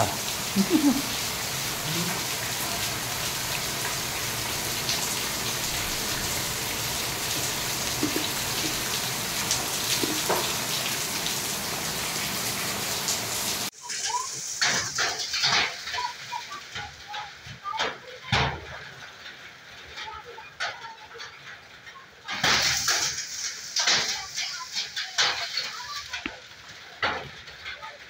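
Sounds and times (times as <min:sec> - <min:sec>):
heavy rain and hail hissing: 0:00.0 - 0:28.0
drops tapping on hard wet surface: 0:07.3 - 0:10.6.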